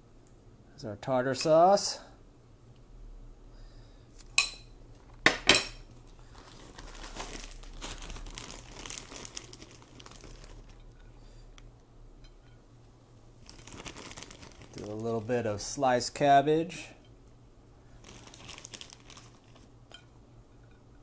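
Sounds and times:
plastic bag crinkling: 6.1s - 11.0s, 13.4s - 15.4s, 17.9s - 19.8s.

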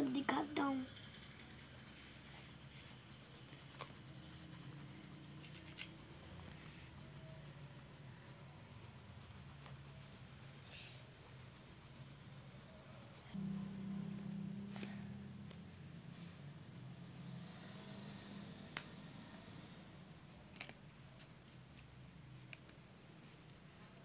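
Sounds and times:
pencil scratching on paper: 0.0s - 13.4s, 14.7s - 24.0s
pencil ticking on paper: 0.0s - 13.4s, 14.7s - 24.0s.

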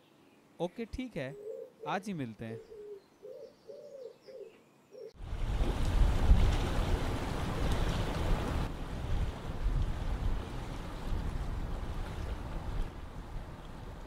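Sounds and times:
pigeons cooing faintly: 1.2s - 5.2s
wind buffeting microphone: 5.2s - 14.0s.

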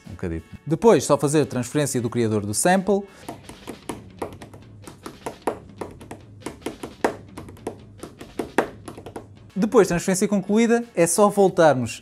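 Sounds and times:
light irregular taps: 3.2s - 9.4s.

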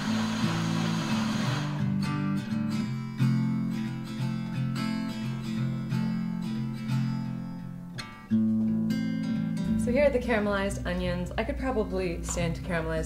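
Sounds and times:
blender whirring: 0.0s - 2.0s
strummed acoustic guitar music: 0.0s - 13.0s.

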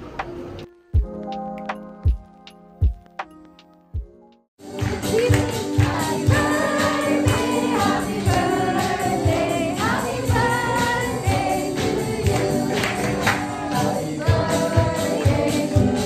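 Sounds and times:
hand claps: 4.6s - 10.0s, 10.8s - 14.4s
acoustic guitar: 4.6s - 16.0s
group singing: 5.4s - 16.0s.

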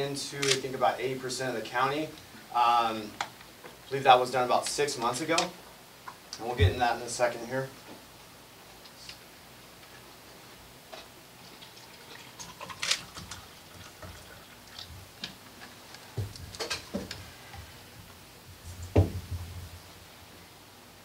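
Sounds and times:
dull thud: 18.9s - 19.7s.

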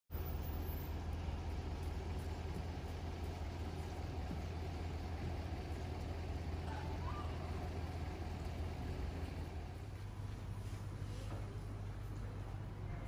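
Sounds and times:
low urban rumble: 0.1s - 13.0s.

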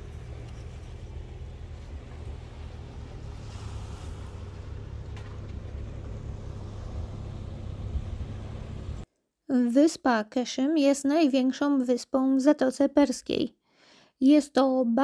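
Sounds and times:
wind buffeting microphone: 2.3s - 9.0s.

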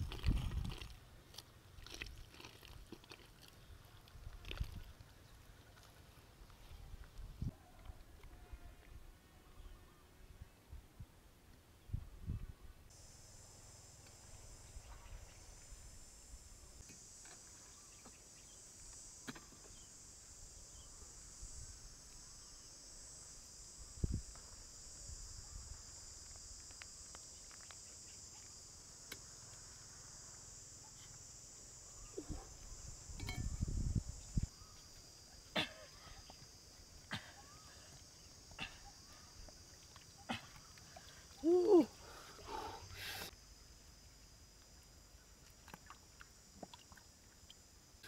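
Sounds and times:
insects chirring: 12.9s - 48.0s.

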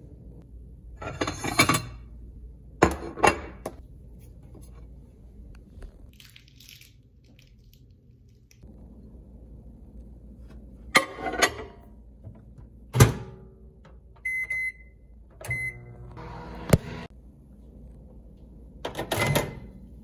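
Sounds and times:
microwave humming: 8.6s - 20.0s
microwave click: 15.4s - 17.0s
keypad beeps: 15.5s - 15.8s
microwave door and dish clatter: 18.8s - 19.7s.

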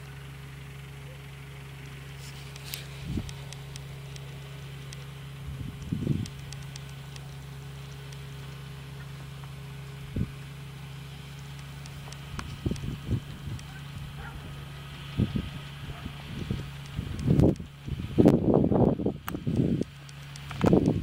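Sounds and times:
distant tractor diesel engine: 0.0s - 21.0s.

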